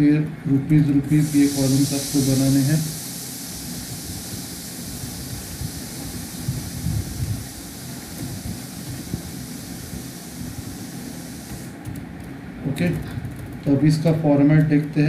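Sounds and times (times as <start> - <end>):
hiss: 1.0 - 11.9.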